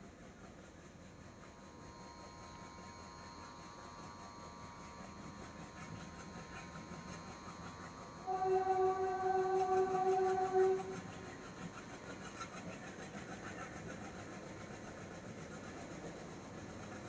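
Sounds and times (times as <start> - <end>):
train running on track: 0.0 - 17.0
locomotive horn: 8.2 - 11.4.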